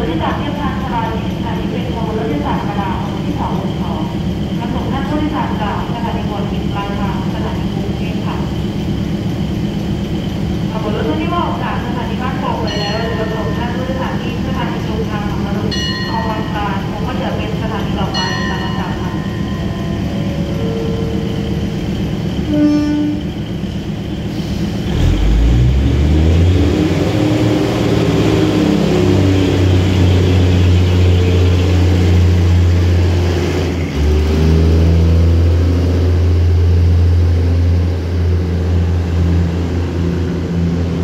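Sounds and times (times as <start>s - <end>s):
diesel train engine revving: 0.0s - 41.0s
train horn: 22.4s - 23.4s.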